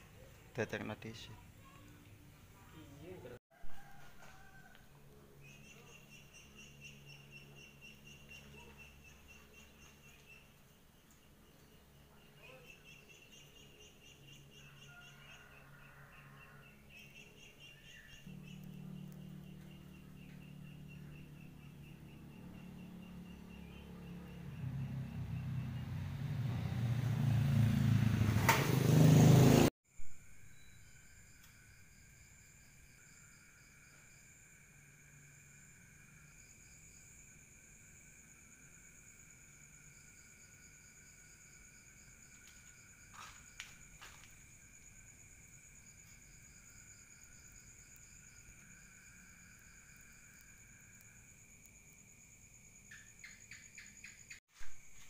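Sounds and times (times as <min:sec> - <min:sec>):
insects chirping: 0:00.1 - 0:27.6, 0:29.9 - 0:55.0
low steady hum: 0:18.1 - 0:24.0
motor engine running: 0:18.3 - 0:29.7.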